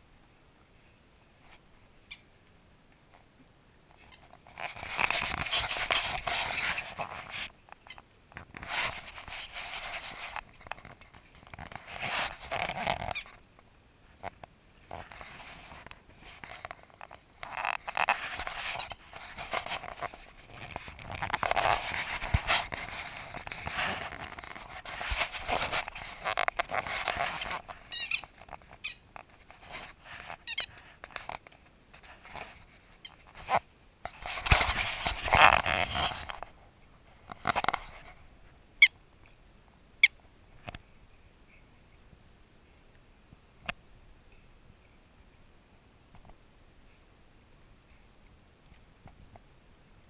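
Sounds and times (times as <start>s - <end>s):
fur rubbing on microphone: 4.0s - 7.6s, 8.5s - 13.4s, 14.9s - 38.2s
squeaky dog toy squeaking: 27.9s - 29.0s, 30.4s - 30.7s.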